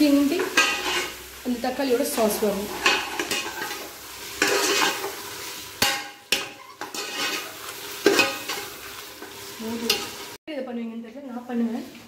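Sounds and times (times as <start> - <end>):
food sizzling: 0.0 - 12.0
metal spoon scraping pan: 0.3 - 1.3, 2.1 - 10.4.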